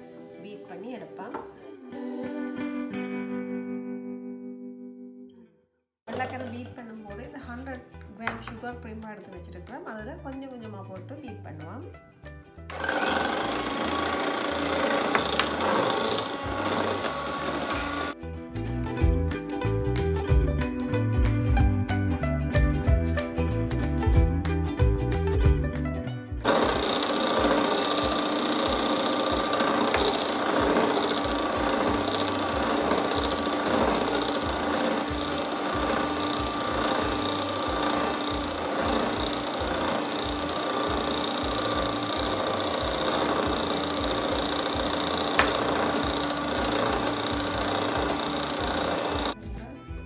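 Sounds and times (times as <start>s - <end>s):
electric hand mixer whipping: 6.1s - 6.8s, 12.7s - 18.2s, 26.4s - 49.4s.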